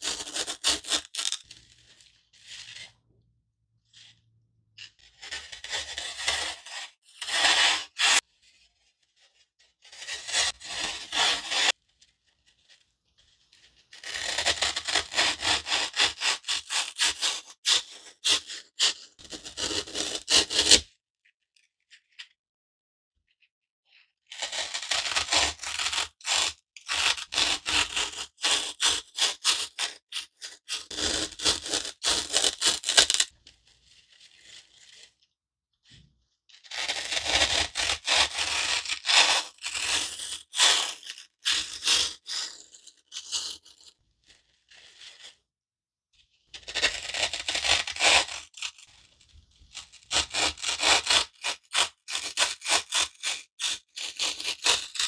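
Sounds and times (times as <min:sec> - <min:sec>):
foam block being cut: 0:00.0 - 0:01.7, 0:05.1 - 0:08.2, 0:09.8 - 0:11.8, 0:13.9 - 0:20.8, 0:24.3 - 0:33.3, 0:36.6 - 0:43.7, 0:46.6 - 0:48.7, 0:49.8 - 0:55.0.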